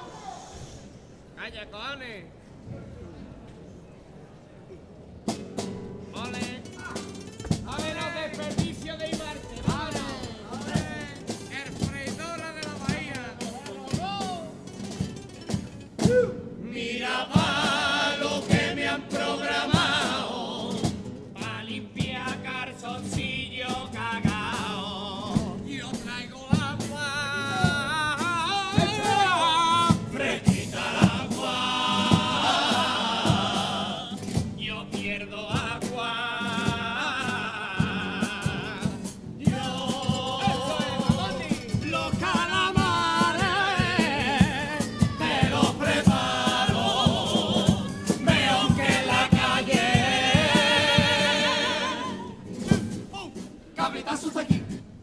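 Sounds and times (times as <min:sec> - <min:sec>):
guitars: 0:05.2 - 0:55.0
drum keeping the beat: 0:05.3 - 0:16.4, 0:17.0 - 0:53.8
group singing together: 0:16.6 - 0:21.9, 0:27.4 - 0:34.4, 0:35.5 - 0:52.5, 0:53.8 - 0:54.5.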